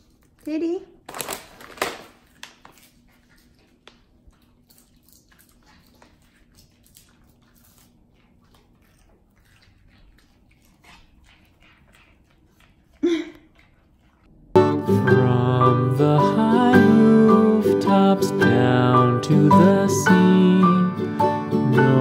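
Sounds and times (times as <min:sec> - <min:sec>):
dog chewing food: 0:01.7 - 0:14.6.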